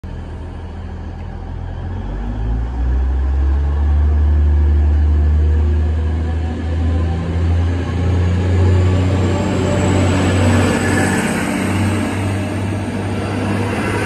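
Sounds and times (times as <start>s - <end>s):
train diesel engines droning: 0.0s - 14.0s.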